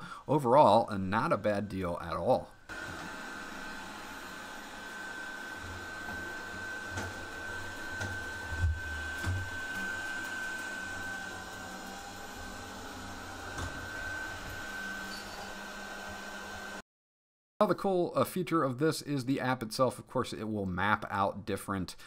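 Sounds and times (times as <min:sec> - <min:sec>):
robot vacuum whirring: 0:02.7 - 0:16.8.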